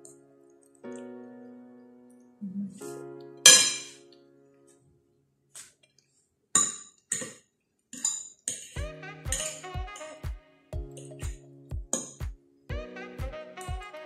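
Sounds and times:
soft piano music: 0.0 - 5.3, 8.8 - 14.0
cutlery clinking on a plate: 3.5 - 3.9.

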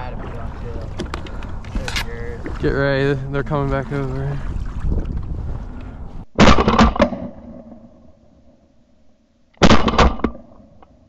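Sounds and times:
shotgun shots with echo: 6.4 - 7.8, 9.6 - 10.5.

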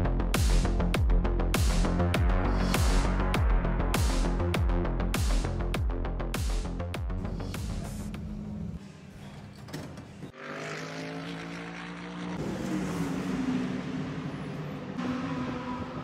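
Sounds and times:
race car engines running: 7.2 - 16.0
race car passing by: 10.4 - 16.0.

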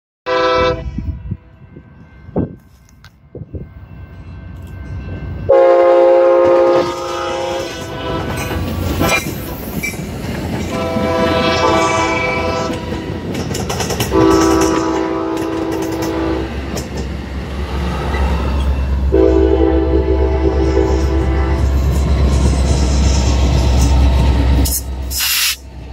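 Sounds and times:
multi-chime train horn blasts: 0.3 - 2.8, 3.4 - 9.2, 10.7 - 13.2, 14.1 - 16.6, 19.0 - 22.0
train wheels clacking on rails: 6.1 - 19.1.

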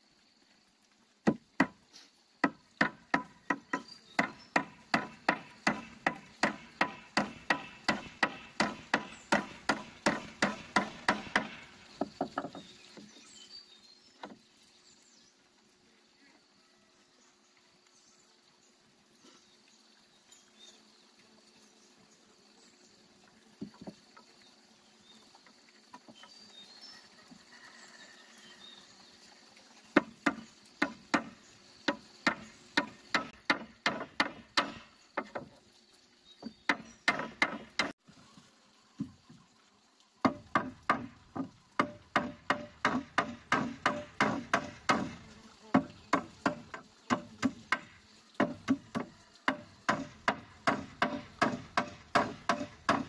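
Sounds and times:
hammer driving nails into wood: 2.4 - 12.6, 36.7 - 37.9, 40.3 - 45.2, 46.1 - 53.0.

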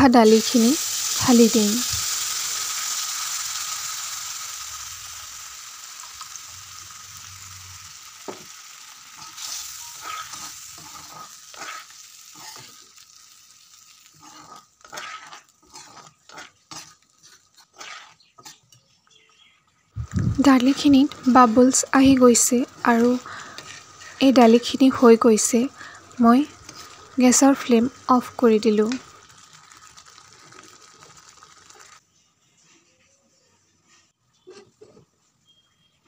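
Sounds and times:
lentils sizzling in hot oil: 0.0 - 18.8, 20.0 - 32.0
metal spatula scraping a pan: 9.1 - 18.8, 22.5 - 24.6, 33.9 - 35.6.

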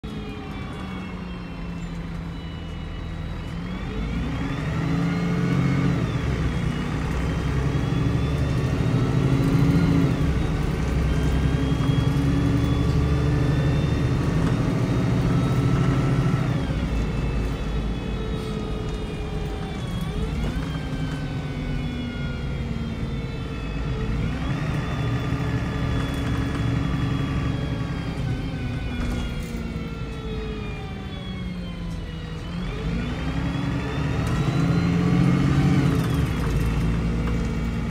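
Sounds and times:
bus diesel engine pulling: 0.0 - 37.9
whine: 0.0 - 37.9.

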